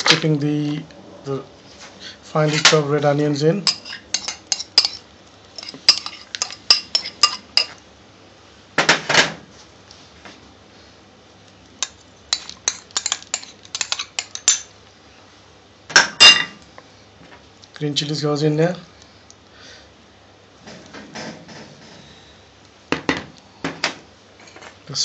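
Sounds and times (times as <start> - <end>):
utensils and dishes clinking: 3.6 - 5.0, 5.6 - 7.8, 11.8 - 14.7.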